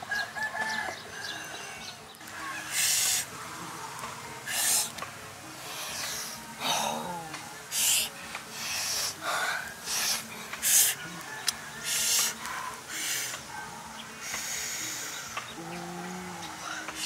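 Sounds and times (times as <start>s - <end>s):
person sniffing loudly: 2.7s - 3.3s, 4.5s - 4.9s, 7.7s - 11.0s, 11.8s - 13.4s.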